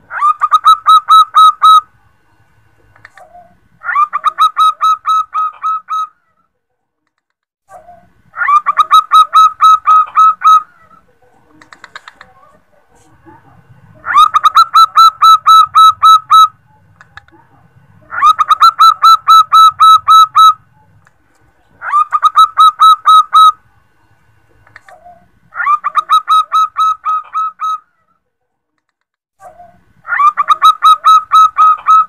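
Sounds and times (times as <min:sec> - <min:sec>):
dove calling in staccato notes: 0:00.1 - 0:02.0, 0:03.0 - 0:06.1, 0:08.4 - 0:12.3, 0:14.0 - 0:17.3, 0:18.0 - 0:21.1, 0:21.8 - 0:23.7, 0:24.6 - 0:27.8, 0:29.6 - 0:32.0.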